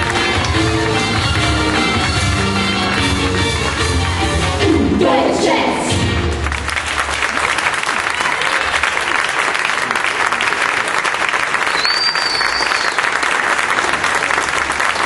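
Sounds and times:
audience applauding: 0:00.0 - 0:04.2, 0:06.3 - 0:15.0
high whistle: 0:11.7 - 0:13.0.

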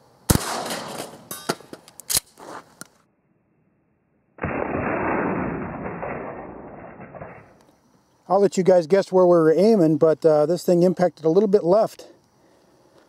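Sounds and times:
shotgun blast echoing: 0:00.3 - 0:01.1
sharp cracks: 0:00.3 - 0:03.0, 0:04.4 - 0:07.8.

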